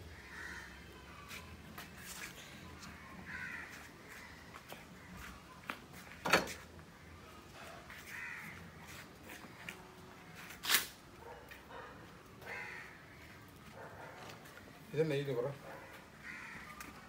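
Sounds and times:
crows cawing: 0:00.1 - 0:01.0, 0:02.8 - 0:05.3, 0:07.0 - 0:09.8, 0:12.4 - 0:13.6, 0:15.7 - 0:17.0.

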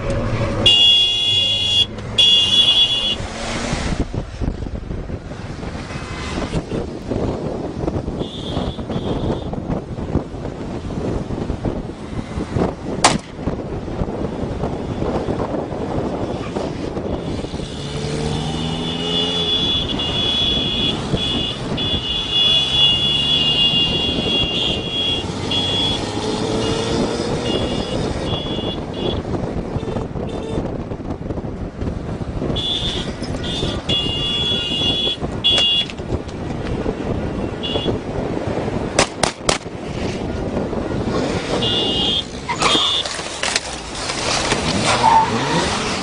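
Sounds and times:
car engine and road noise: 0:00.0 - 0:46.0
horn blasts: 0:41.6 - 0:43.1.

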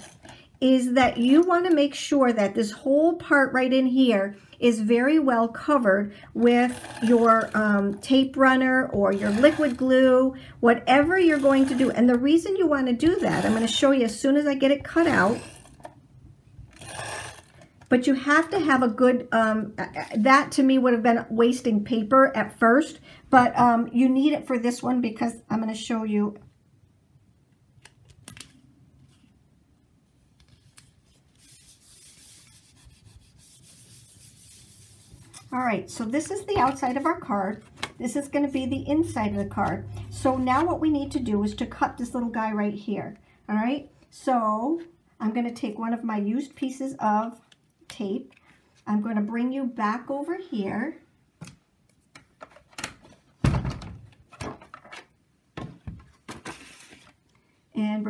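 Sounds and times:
hands rubbing paper: 0:30.5 - 0:35.6.

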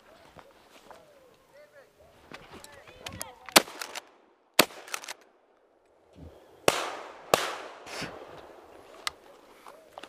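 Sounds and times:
shotgun shots: 0:03.5 - 0:05.2, 0:06.7 - 0:08.3
gunshot echo: 0:06.7 - 0:08.4.

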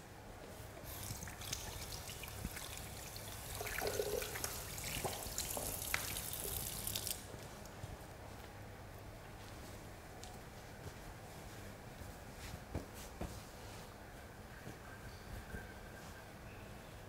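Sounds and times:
tap water running into sink: 0:00.9 - 0:07.3.

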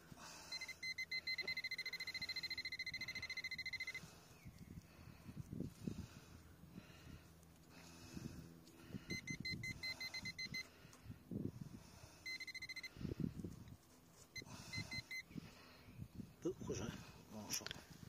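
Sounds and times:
metal detector beeping: 0:00.5 - 0:04.1, 0:09.0 - 0:10.7, 0:12.2 - 0:13.0, 0:14.4 - 0:15.3.

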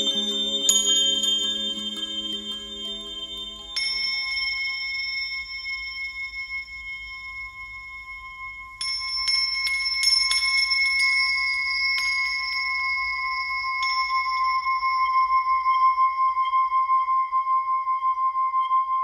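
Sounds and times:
struck bells ringing: 0:00.0 - 0:15.2.

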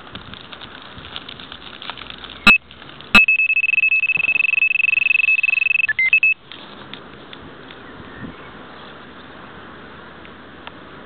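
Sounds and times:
bite alarm beeping: 0:03.2 - 0:06.4
continuous high-pitched alarm tone: 0:03.2 - 0:06.4.

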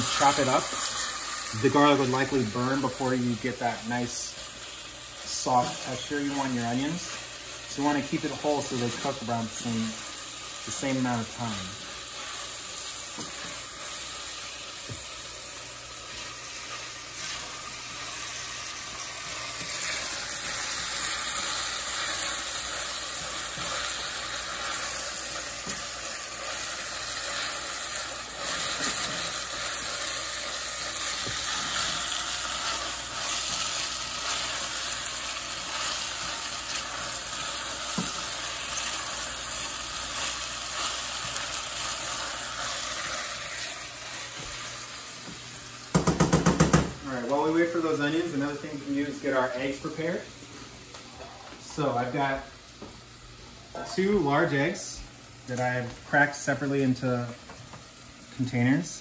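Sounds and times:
onions and garlic sizzling in a pan: 0:00.0 - 0:59.0.

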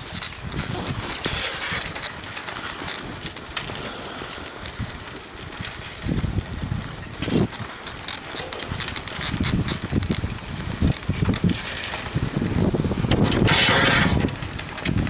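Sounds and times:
skis scraping over packed snow: 0:00.0 - 0:15.0.

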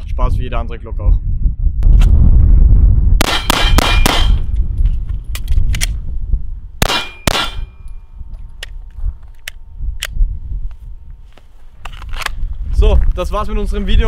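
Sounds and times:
pistol shots with metallic ringing: 0:03.2 - 0:04.5, 0:06.8 - 0:08.0
pistol handling clicks: 0:05.3 - 0:06.0.

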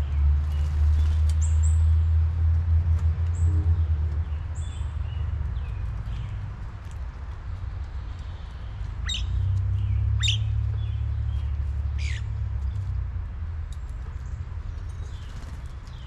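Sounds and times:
sharp bird calls: 0:08.0 - 0:12.8.

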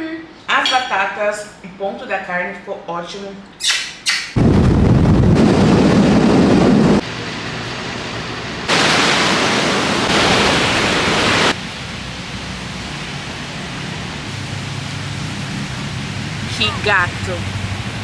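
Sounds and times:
rushing wind: 0:04.4 - 0:12.5
motorbike road noise: 0:06.0 - 0:18.0
surf breaking on shore: 0:08.7 - 0:11.7
beach ambience: 0:08.7 - 0:18.0.

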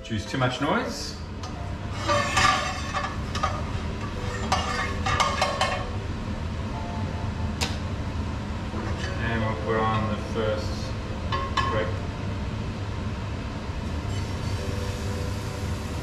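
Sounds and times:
extractor fan humming: 0:00.0 - 0:16.0
metal utensil scraping frying pan: 0:01.8 - 0:05.9.

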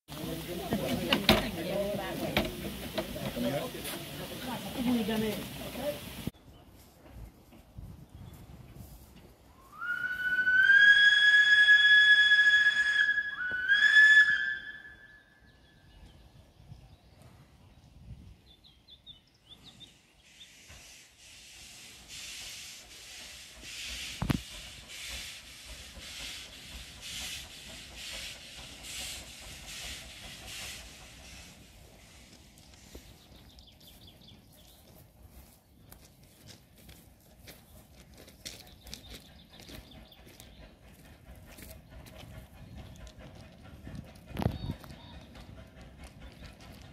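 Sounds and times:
steam engine chuffing: 0:00.1 - 0:06.3, 0:20.5 - 0:34.5, 0:38.0 - 0:46.9
steam locomotive whistle: 0:09.6 - 0:15.4.

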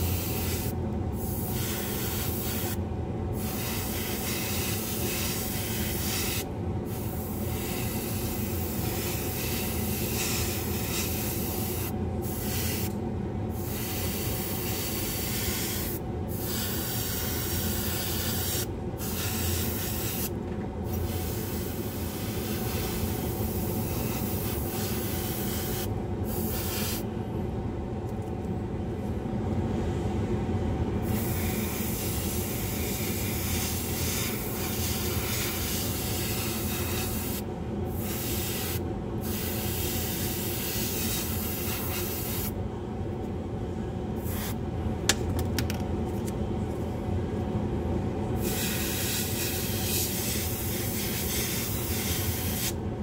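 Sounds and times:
airbrush hissing: 0:00.0 - 0:02.8, 0:03.4 - 0:20.3, 0:20.9 - 0:27.0, 0:31.0 - 0:42.5, 0:48.4 - 0:52.8
exhaust fan running: 0:00.0 - 0:53.0.

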